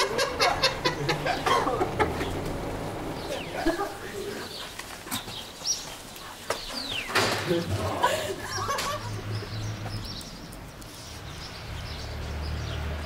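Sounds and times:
people laughing: 0.0 - 4.6, 7.4 - 9.7.

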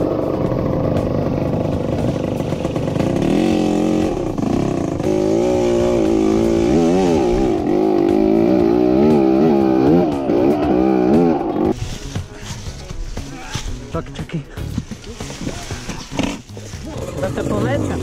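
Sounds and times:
dirt bike engine revving: 0.0 - 11.8, 15.7 - 18.0.

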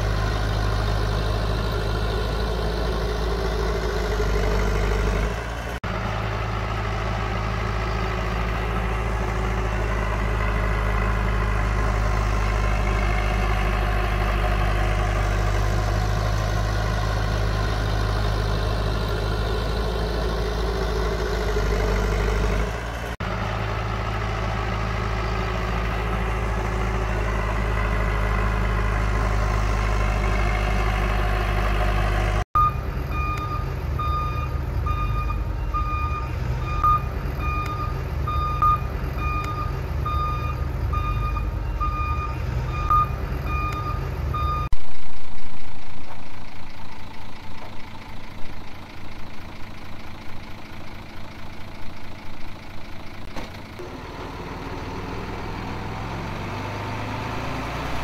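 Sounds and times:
heavy diesel engine running: 0.0 - 58.0
reversing alarm beeping: 32.6 - 44.7.

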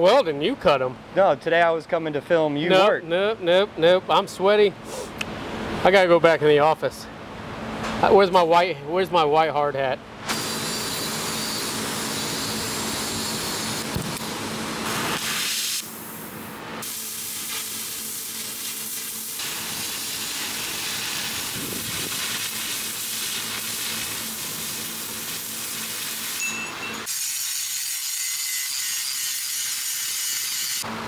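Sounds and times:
cutting torch hissing: 14.8 - 27.4.

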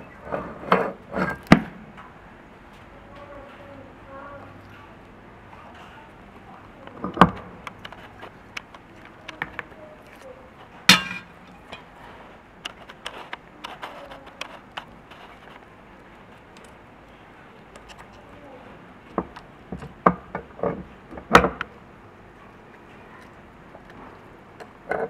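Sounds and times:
loud metal knocks: 10.9 - 11.4.

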